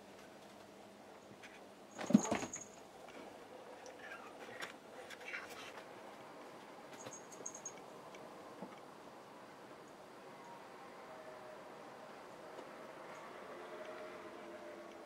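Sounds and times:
cat landing with claws scrabbling: 2.0s - 2.6s.

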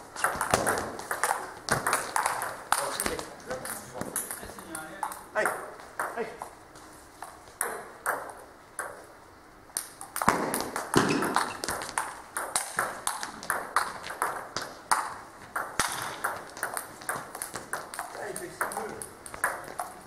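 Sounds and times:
table tennis ball clicks: 9.8s - 20.0s.

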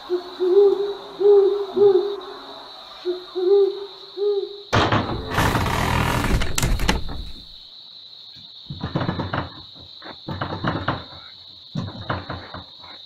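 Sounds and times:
owl hooting: 0.0s - 4.7s.

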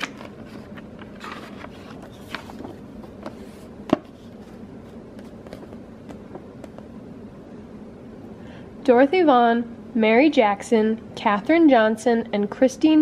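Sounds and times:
paper rustling: 0.0s - 6.2s.

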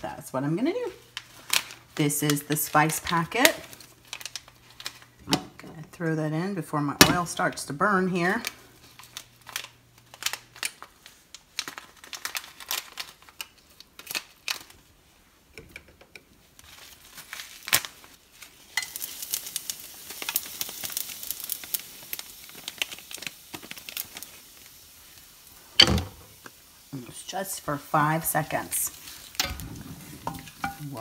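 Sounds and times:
spice packet crinkling: 0.8s - 5.2s, 8.4s - 14.9s, 16.5s - 25.7s, 27.7s - 29.4s
spices sizzling in hot pan: 17.6s - 31.0s.

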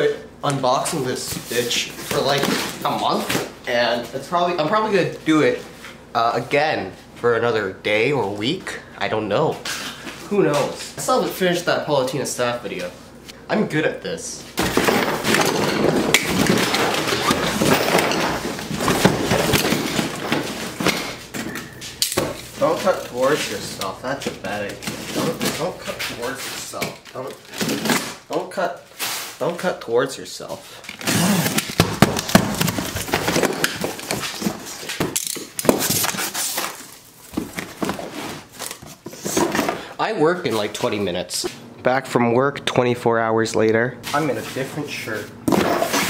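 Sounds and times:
box scraping on wood: 15.8s - 20.9s
box cutter slicing packing tape: 31.0s - 36.9s
box knocks: 31.6s - 34.0s.

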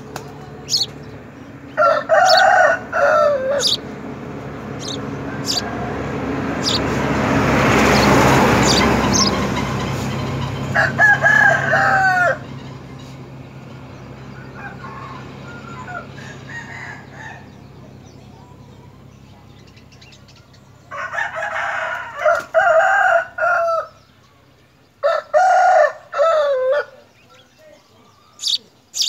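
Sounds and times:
faint calls: 0.6s - 1.0s, 1.8s - 3.9s, 4.7s - 7.0s, 7.9s - 9.7s, 27.3s - 29.0s
rooster crowing: 1.7s - 3.8s, 4.8s - 9.4s, 10.7s - 12.5s, 14.3s - 17.6s, 20.9s - 24.0s, 25.0s - 27.1s.

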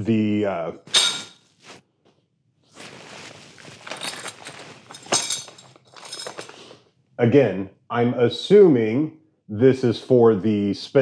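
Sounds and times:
bag rustling: 2.7s - 6.8s.

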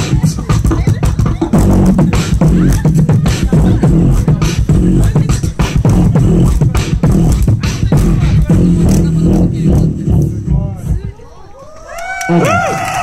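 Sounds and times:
person beatboxing: 0.0s - 11.2s.

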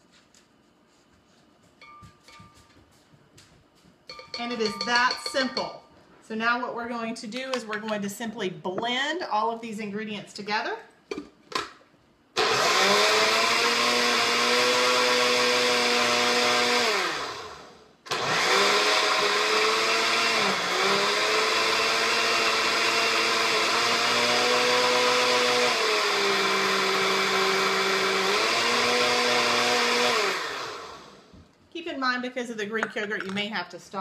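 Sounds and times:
blender motor running: 12.4s - 31.3s.

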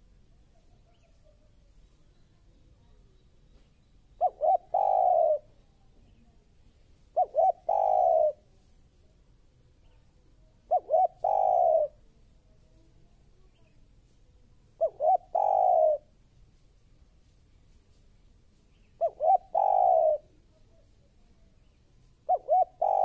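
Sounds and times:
dove cooing: 4.2s - 5.6s, 7.1s - 8.5s, 10.6s - 12.0s, 14.8s - 16.1s, 19.0s - 20.4s, 22.2s - 23.0s.

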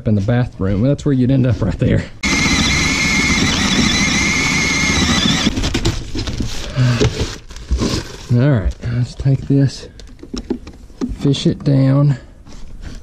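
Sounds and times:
power drill boring through wood: 2.2s - 5.8s.

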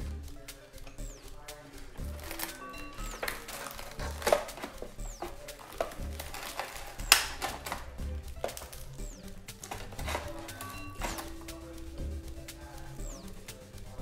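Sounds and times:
background music with low beat: 0.0s - 14.0s
crispy pork skin cracking: 2.0s - 11.5s.

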